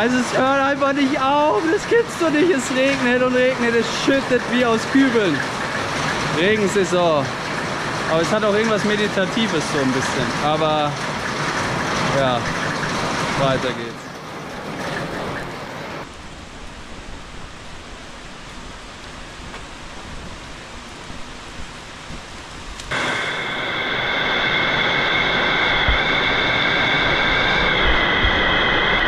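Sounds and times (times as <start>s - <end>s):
heavy rain pouring: 0.0s - 29.0s
steady high-pitched tone: 22.9s - 29.0s.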